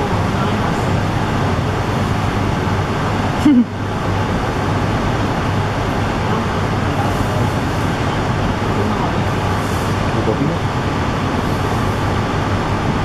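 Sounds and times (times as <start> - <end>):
ambient hiss and rumble: 0.0 - 13.0.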